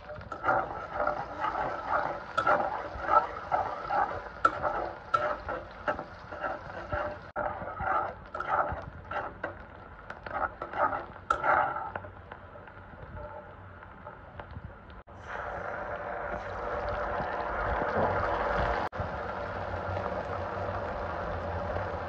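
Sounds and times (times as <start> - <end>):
onions sizzling in oil: 0.0 - 11.9
metal spatula scraping a pot: 0.0 - 13.5.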